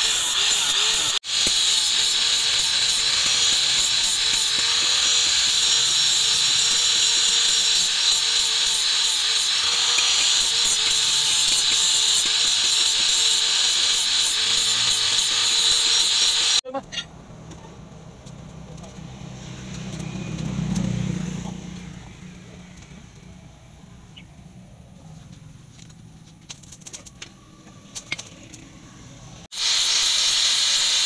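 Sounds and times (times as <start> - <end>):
angle grinder sanding wood: 0.0 - 16.6, 29.5 - 31.0.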